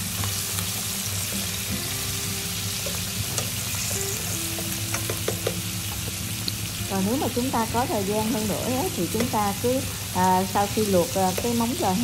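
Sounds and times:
meat sizzling in oil: 0.0 - 12.0
utensil clicking against pot: 4.6 - 5.6, 9.2 - 9.4.

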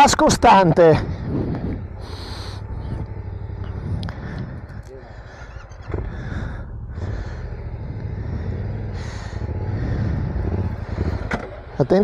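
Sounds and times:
motorcycle engine pulling: 0.9 - 12.0.

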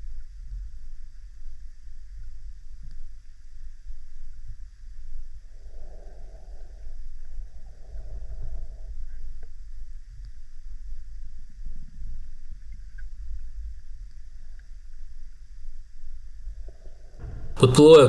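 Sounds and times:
underwater water rumble: 0.0 - 17.7
faint clicks: 1.2 - 3.4, 12.5 - 14.9.

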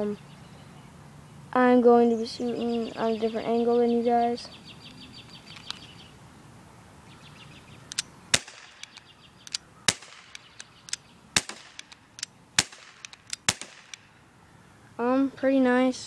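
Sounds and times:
faint clicks: 4.8 - 5.9, 7.9 - 8.1, 8.7 - 9.6
bb pistol sharp cracks: 7.9 - 14.1.

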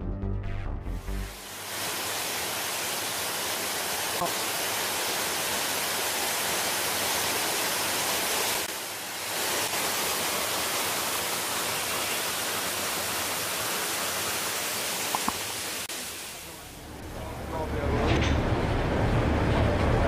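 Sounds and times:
waterfall rushing: 1.2 - 17.0.

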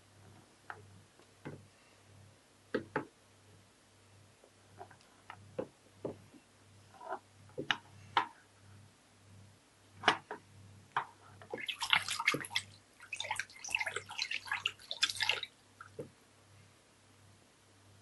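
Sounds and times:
hand splashing water in tub: 11.5 - 16.0.

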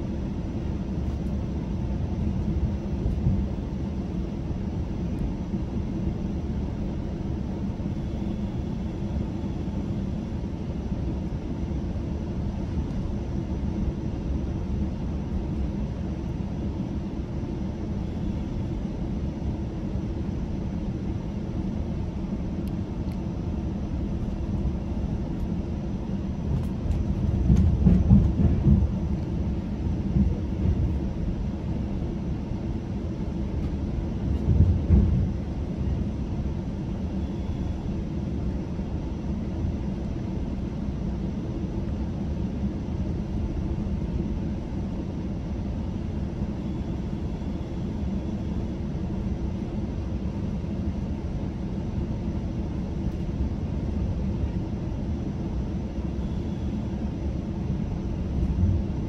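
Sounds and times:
train rumbling on track: 0.0 - 10.4, 22.2 - 40.3, 56.4 - 59.0.

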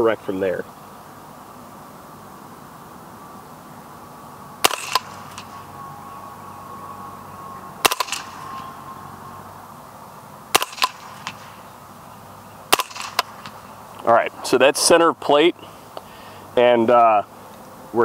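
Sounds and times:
suppressed gunshots: 4.6 - 5.5, 7.8 - 8.5, 10.5 - 11.6, 12.7 - 13.6.

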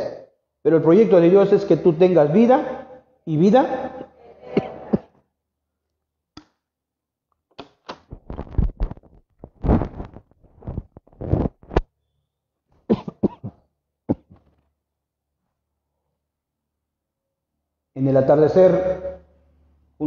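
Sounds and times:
man coughing into microphone: 12.9 - 14.5.

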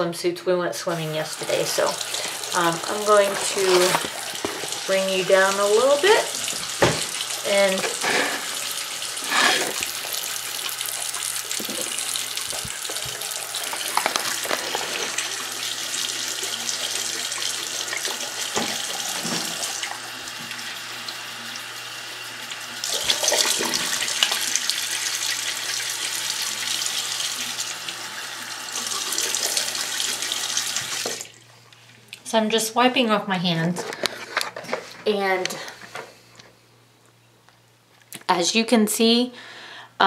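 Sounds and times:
faucet running: 0.8 - 32.1.

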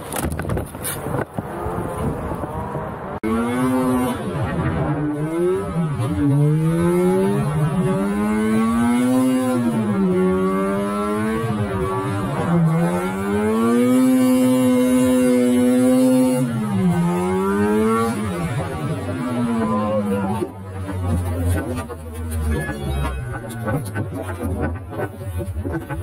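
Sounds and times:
snowmobile engine revving: 1.4 - 26.0.

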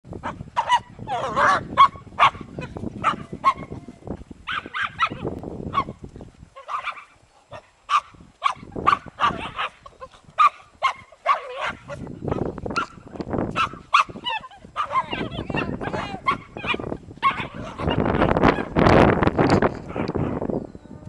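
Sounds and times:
dogs yapping: 0.2 - 3.8, 4.5 - 6.0, 6.6 - 13.0, 13.6 - 18.8.

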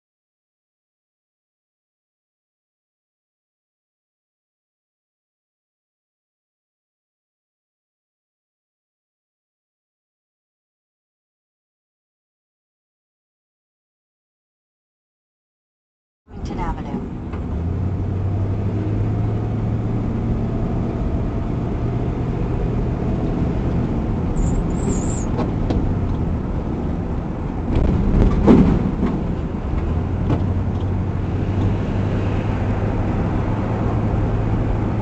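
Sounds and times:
car engine and road hum: 16.3 - 35.0.

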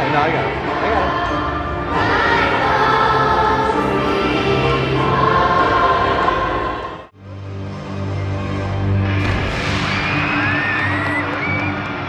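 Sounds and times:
children's choir singing: 0.0 - 7.1.

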